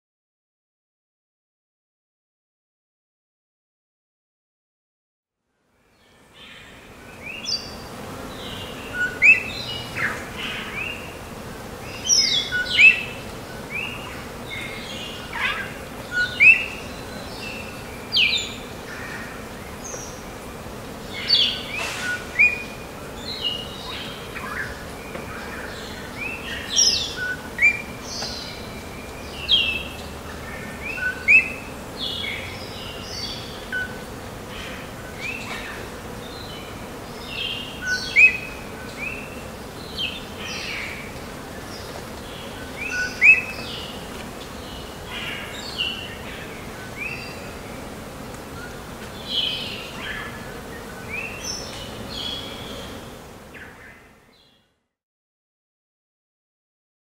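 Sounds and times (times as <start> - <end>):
steady background hiss: 5.5 - 54.5
birds chirping and whistling: 8.8 - 11.0, 12.0 - 14.0, 15.0 - 18.6, 21.2 - 22.7, 26.2 - 30.0, 30.8 - 32.2, 37.4 - 39.2, 42.8 - 43.9.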